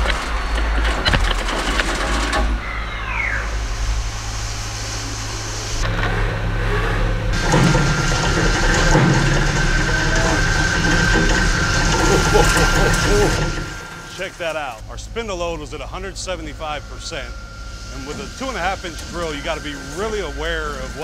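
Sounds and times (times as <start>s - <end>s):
steady high whine: 0.0s - 21.0s
mill spindle drilling steel: 3.6s - 21.0s
coolant spray hissing: 7.4s - 21.0s.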